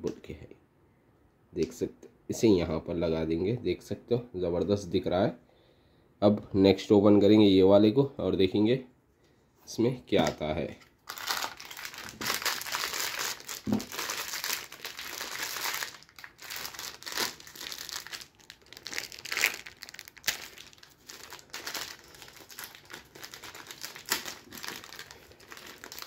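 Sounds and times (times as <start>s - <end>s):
plastic bag crinkling: 11.0s - 26.0s.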